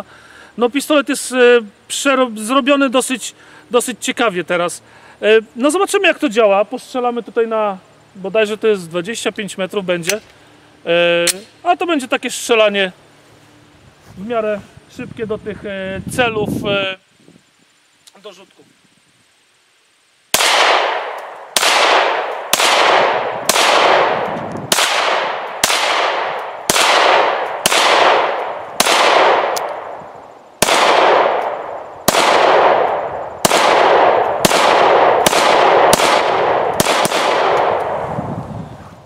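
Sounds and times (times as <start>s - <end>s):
pistol shots echoing: 20.3s - 30.0s, 30.6s - 38.0s.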